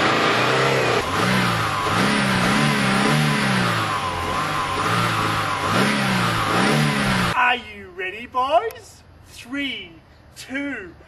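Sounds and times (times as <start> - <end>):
car engine revving: 0.0 - 7.4.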